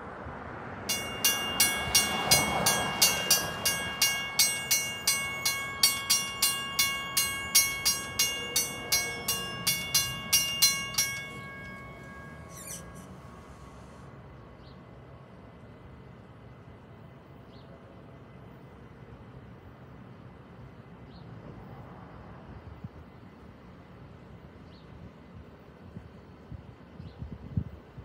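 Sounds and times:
crossing warning bell ringing: 0.9s - 13.8s.

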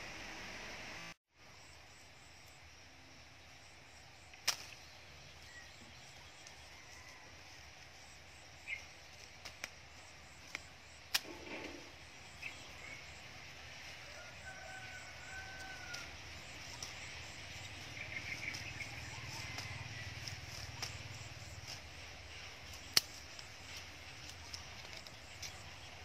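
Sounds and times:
faint outdoor background: 0.0s - 26.0s
scissors snipping stems: 4.3s - 5.0s, 8.7s - 11.9s, 15.5s - 26.0s.

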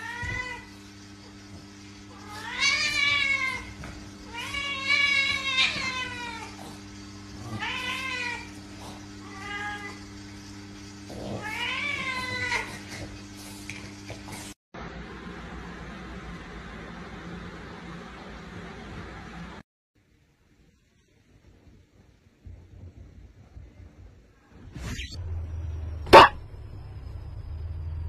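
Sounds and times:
cat yowling: 2.2s - 6.6s, 7.4s - 8.6s, 11.3s - 12.7s.

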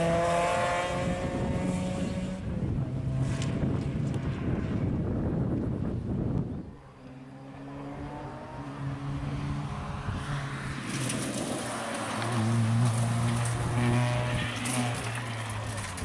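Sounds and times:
tyres hissing over gravel: 10.8s - 16.0s.

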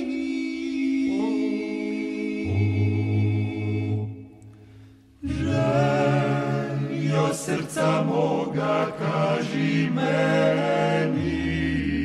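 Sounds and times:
vocal group singing in harmony: 0.0s - 12.0s.

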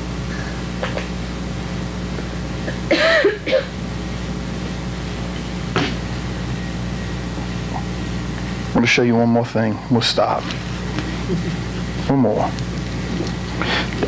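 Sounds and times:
low hum of room noise: 0.0s - 14.0s
person murmuring: 11.2s - 12.6s.

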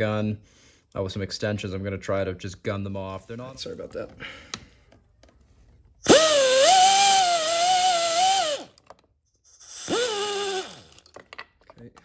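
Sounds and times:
pneumatic air gun whining: 6.0s - 8.9s, 9.5s - 11.1s.

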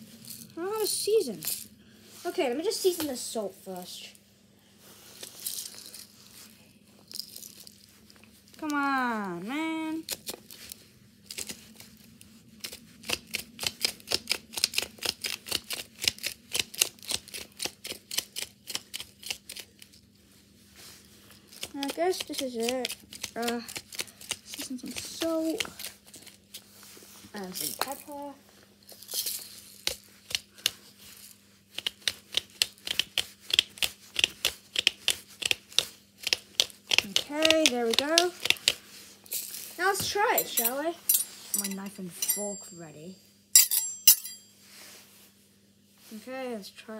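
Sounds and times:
salt grinder clicking: 31.8s - 38.8s.

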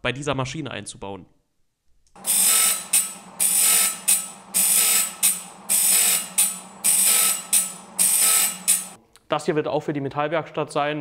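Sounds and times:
grinder motor humming: 2.2s - 9.0s
grinding wheel hissing on saw teeth: 2.2s - 9.0s.

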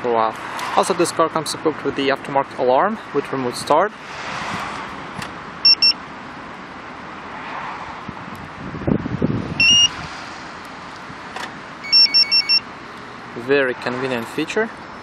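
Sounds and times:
remote fob beeping: 5.6s - 6.0s, 9.6s - 10.0s, 11.8s - 12.6s.

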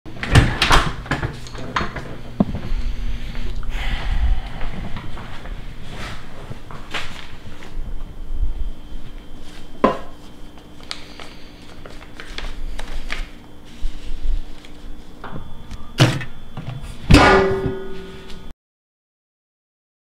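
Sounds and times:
paper envelopes torn open: 10.7s - 13.4s
metal trash can lid clanking: 17.1s - 18.2s.

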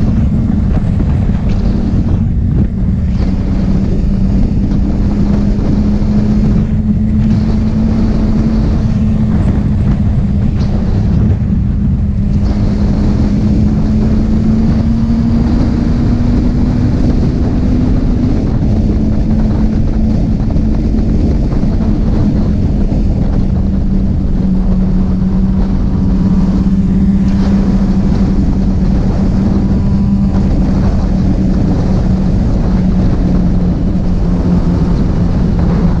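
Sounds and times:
motorcycle engine cruising: 0.0s - 36.0s
wind on microphone: 0.0s - 36.0s.

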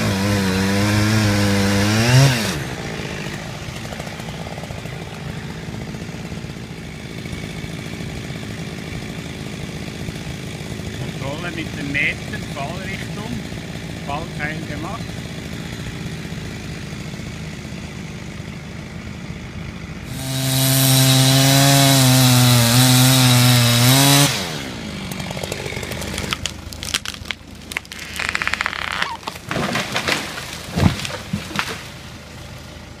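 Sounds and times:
chainsaw idling and revving: 0.0s - 33.0s
tree cracking and snapping: 0.1s - 6.1s, 21.0s - 32.3s.

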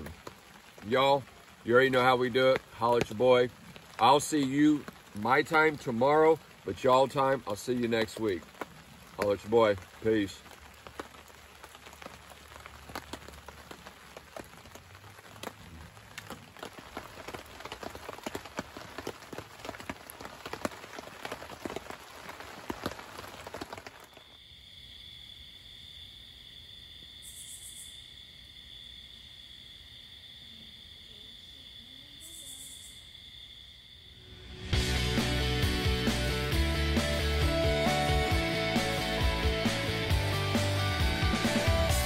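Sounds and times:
wood fire crackling and popping: 0.0s - 24.2s
night insect chorus: 0.0s - 35.0s
insect buzzes: 24.0s - 34.8s.

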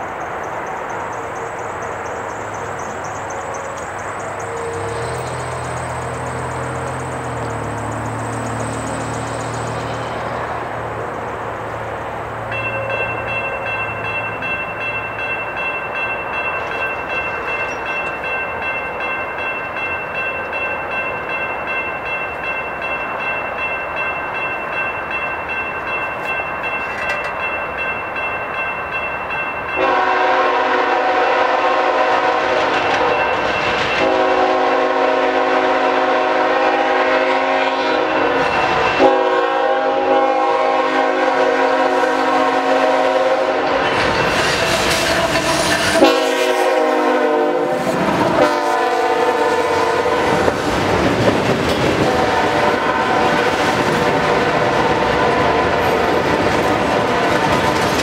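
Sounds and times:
crossing warning bell ringing: 0.0s - 58.0s
locomotive horn blasts: 29.8s - 33.3s, 34.0s - 43.8s, 44.9s - 50.5s, 52.0s - 57.8s.

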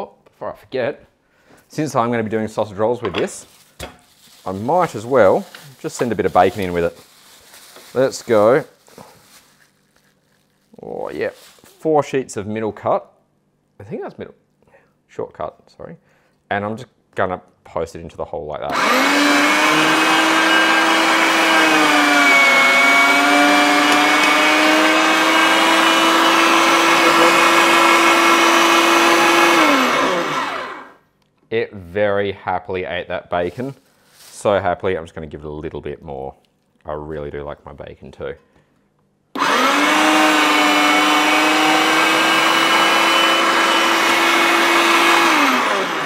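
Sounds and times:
electric meat mincer whining: 18.7s - 31.0s, 39.4s - 46.0s.

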